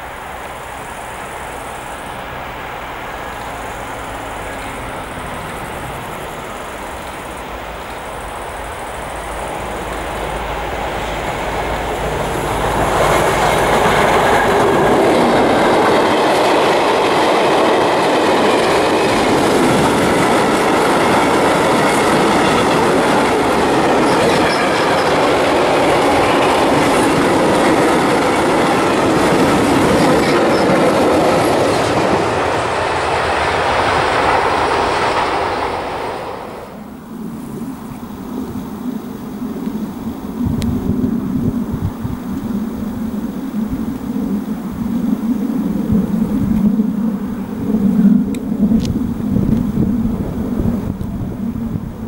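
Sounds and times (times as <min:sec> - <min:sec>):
high wheel squeals: 0:00.0 - 0:17.2, 0:18.1 - 0:36.1
diesel locomotive engine hum: 0:00.0 - 0:52.0
wagon wheels clattering on rails: 0:03.4 - 0:35.5.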